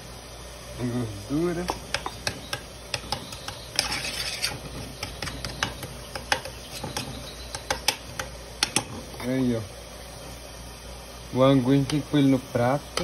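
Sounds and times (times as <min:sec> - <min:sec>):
spoon scraping metal pot: 0:01.7 - 0:09.3.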